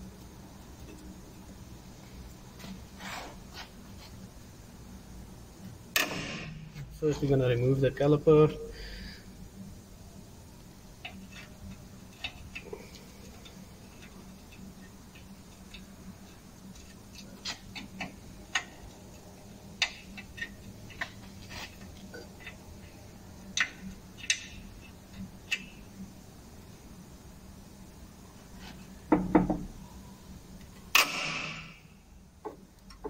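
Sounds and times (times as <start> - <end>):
low steady hum: 0.0 - 33.0.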